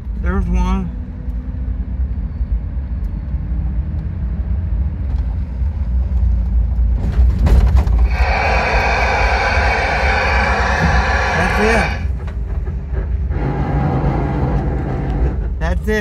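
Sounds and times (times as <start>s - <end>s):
vehicle engine and road rumble: 0.0s - 16.0s
burst of noise: 8.0s - 12.2s.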